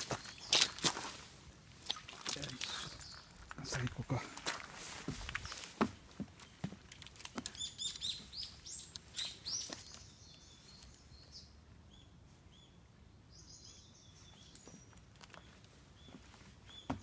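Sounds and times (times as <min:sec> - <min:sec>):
footsteps on wooden boardwalk: 0:00.0 - 0:10.1, 0:14.3 - 0:17.0
small bird chirping: 0:07.4 - 0:17.0.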